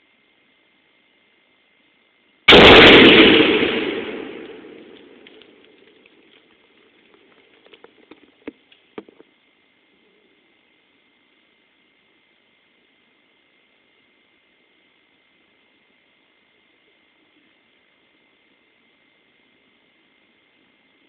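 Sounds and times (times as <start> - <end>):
explosive blast rumbling: 2.5 - 5.6.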